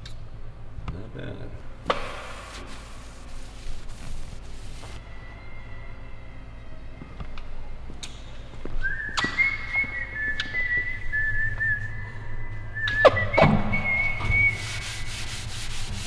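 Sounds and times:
lower whistling tone: 8.7s - 15.7s
high whistling tone: 8.8s - 15.6s.

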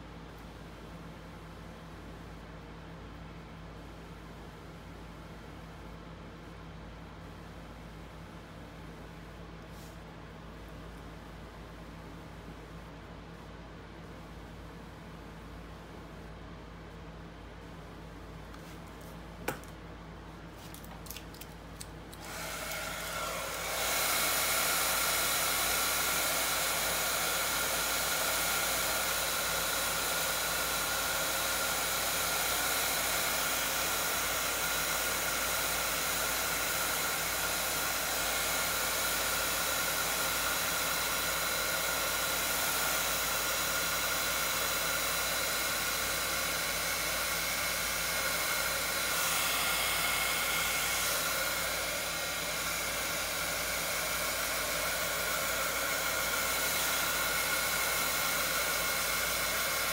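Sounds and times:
heat gun whirring: 21.0s - 59.9s.

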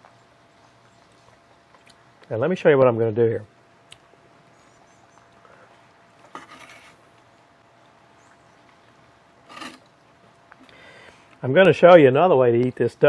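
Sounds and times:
knife scraping through meat: 6.3s - 7.0s, 9.5s - 9.9s.

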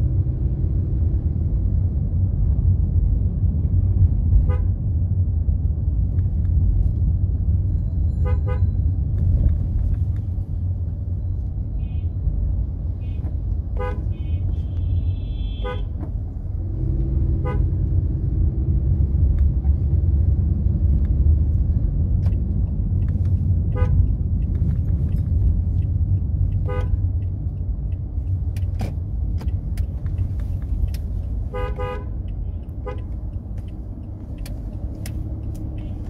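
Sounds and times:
low road rumble: 0.0s - 36.0s
vehicle horn toots: 8.2s - 8.8s, 13.8s - 15.9s, 26.6s - 27.0s, 31.5s - 32.1s.

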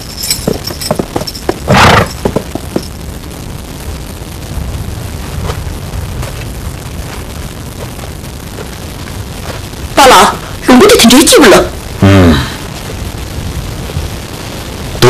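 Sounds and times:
saddle tack clinking: 0.0s - 2.9s
low rumble: 0.0s - 10.7s
horse snorting: 1.1s - 2.8s.

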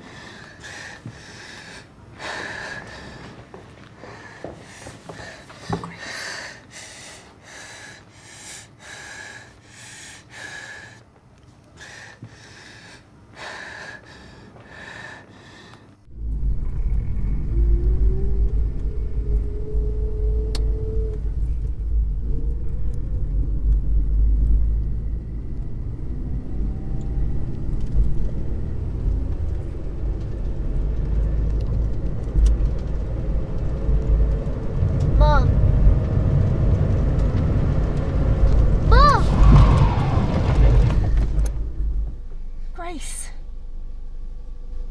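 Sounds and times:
rapid gasping breaths: 0.0s - 11.1s, 11.7s - 16.1s
car engine rumble: 16.0s - 44.9s
road noise: 16.0s - 44.9s.

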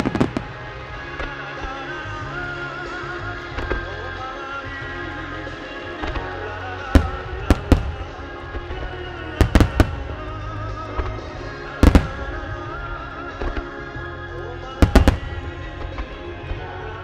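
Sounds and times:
music: 0.0s - 17.0s
firework shells bursting: 7.0s - 12.6s.

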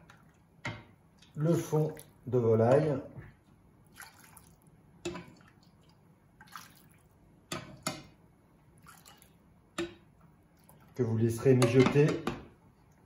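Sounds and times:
utensils knocking against pan: 11.5s - 12.5s.

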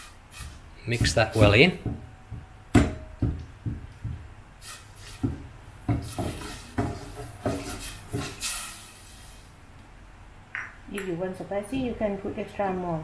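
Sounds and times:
metal spoon scraping a pot: 6.0s - 8.7s.

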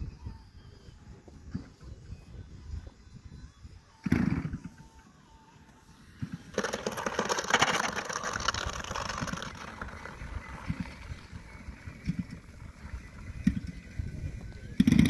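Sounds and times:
model plane scraping on asphalt: 6.5s - 15.0s.

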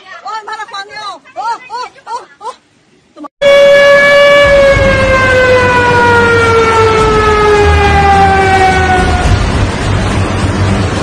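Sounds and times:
warning siren wailing: 3.4s - 9.8s.

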